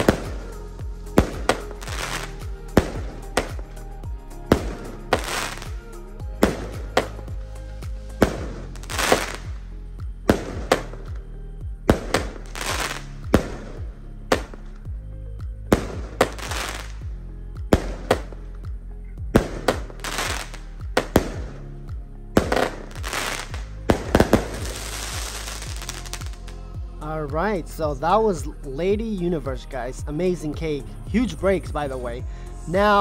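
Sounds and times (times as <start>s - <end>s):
firework bangs: 0.0s - 0.6s, 1.2s - 3.8s, 4.5s - 5.8s, 6.4s - 9.6s, 10.3s - 11.2s, 11.9s - 14.6s, 15.7s - 17.0s, 17.7s - 18.4s, 19.3s - 21.6s, 22.4s - 26.5s
firework crackle and hiss: 0.0s - 3.8s, 4.4s - 9.6s, 11.9s - 14.6s, 15.7s - 17.0s, 19.4s - 21.6s, 22.4s - 26.6s.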